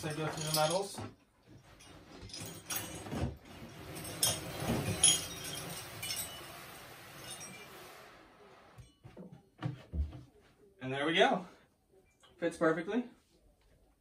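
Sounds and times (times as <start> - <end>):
metal medals clinking: 0.0 - 3.2, 3.8 - 8.0.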